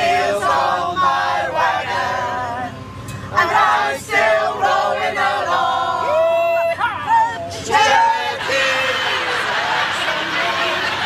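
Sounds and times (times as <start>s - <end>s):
group of people singing: 0.0s - 11.0s.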